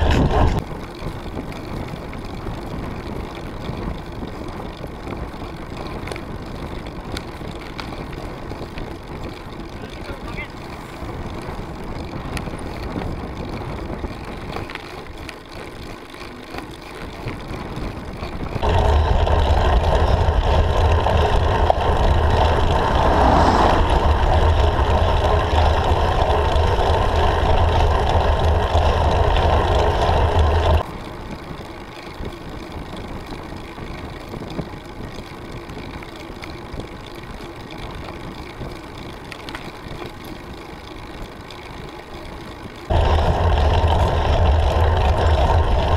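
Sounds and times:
loud steady rumble: 0:00.0 - 0:00.6, 0:18.1 - 0:30.9, 0:41.7 - 0:45.9
wind and road noise: 0:00.0 - 0:45.9.

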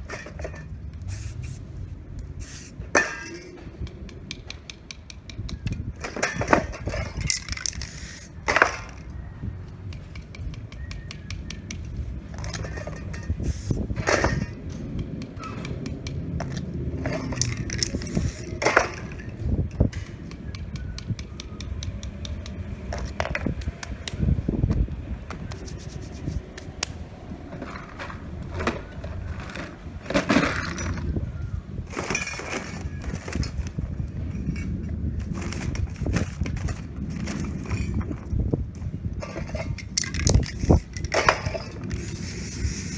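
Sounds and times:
spray can hissing: 0:01.0 - 0:01.8, 0:02.4 - 0:02.8, 0:07.8 - 0:08.4, 0:13.4 - 0:13.8, 0:17.7 - 0:18.6, 0:42.0 - 0:42.9.

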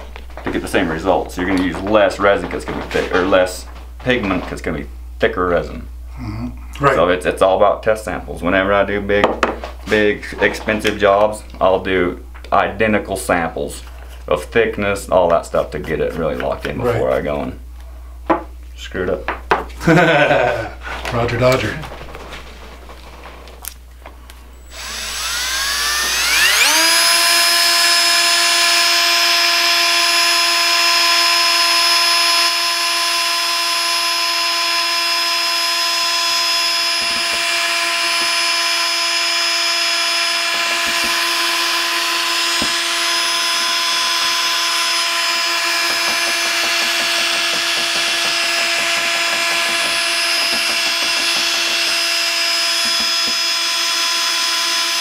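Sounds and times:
cordless drill whining: 0:24.6 - 0:55.0.

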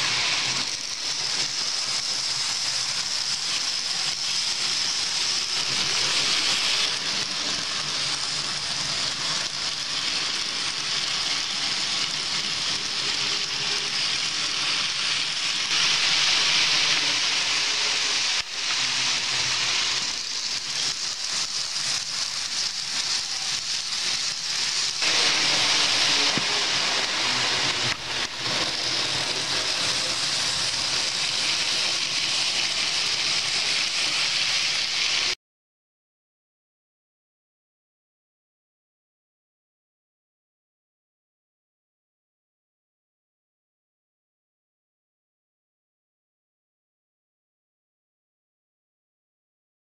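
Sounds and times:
model train running on track: 0:00.0 - 0:35.4.

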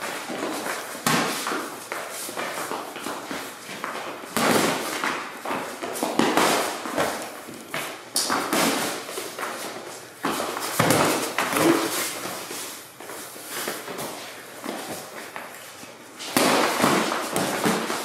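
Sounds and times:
boxing gloves striking: 0:16.3 - 0:18.0.

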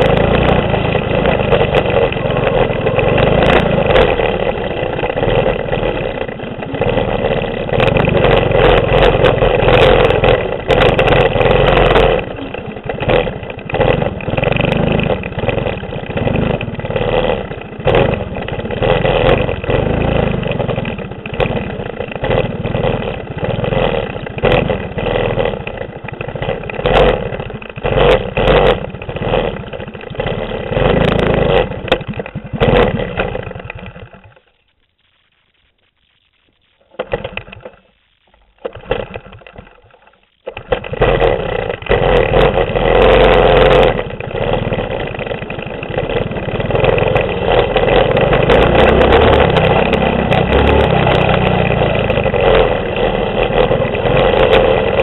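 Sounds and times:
small engine revving: 0:00.0 - 0:34.5, 0:38.6 - 0:55.0
knocks and rattles over rough ground: 0:00.0 - 0:34.9, 0:36.4 - 0:55.0.

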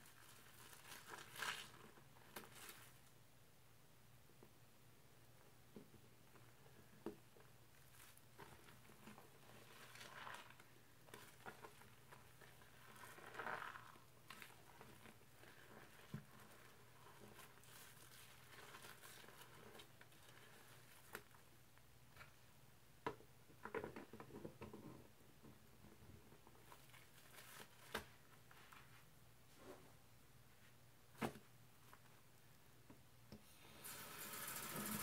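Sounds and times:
foam squishing and crackling: 0:00.0 - 0:03.0, 0:07.8 - 0:21.4.

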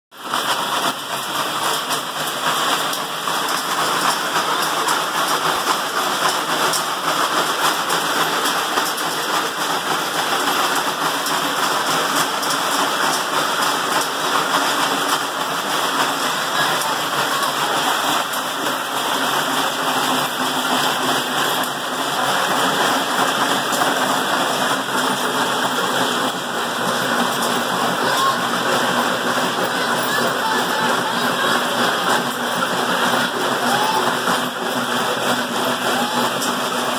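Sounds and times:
clatter of treadmill slats: 0:00.2 - 0:36.9.

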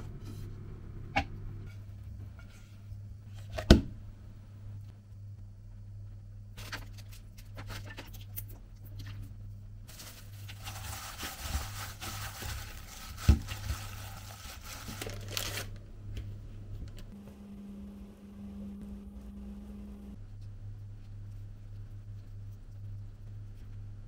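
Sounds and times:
plastic glove crinkling: 0:09.9 - 0:15.8.

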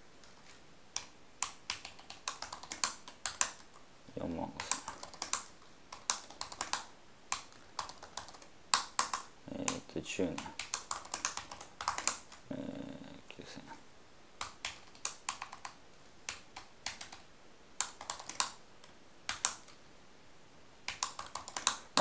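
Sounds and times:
computer keyboard typing: 0:01.0 - 0:03.8, 0:04.5 - 0:12.4, 0:14.4 - 0:19.8, 0:20.9 - 0:22.0.

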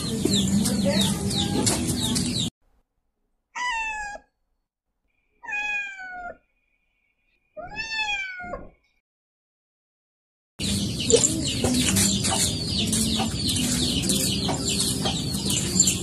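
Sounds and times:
cat meowing: 0:03.6 - 0:04.4, 0:05.4 - 0:06.4, 0:07.6 - 0:08.8.

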